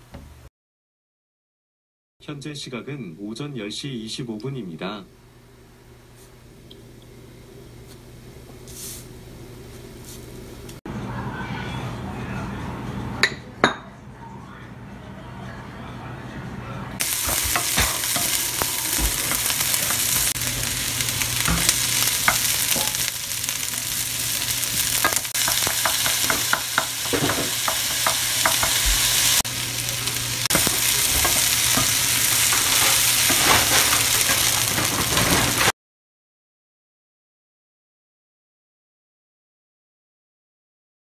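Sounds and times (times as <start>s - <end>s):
spatula clicking and scraping pan: 17.0s - 20.4s, 21.4s - 24.0s, 24.7s - 29.3s, 30.5s - 35.7s
vegetables sizzling in frying pan: 17.0s - 35.7s.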